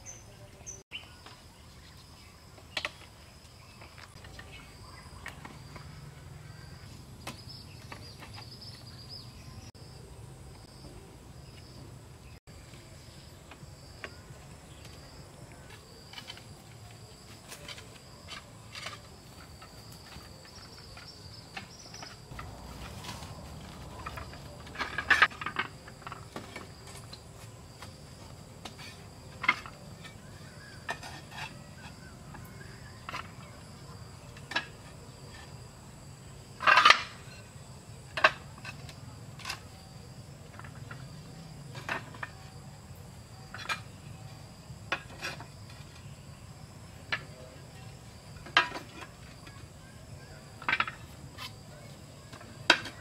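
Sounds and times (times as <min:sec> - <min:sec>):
clay roof tiles clacking: 0:07.2 - 0:09.0, 0:13.4 - 0:35.6, 0:36.6 - 0:37.5, 0:38.1 - 0:39.8, 0:40.4 - 0:42.7, 0:43.5 - 0:44.1, 0:44.8 - 0:46.2, 0:46.9 - 0:53.0.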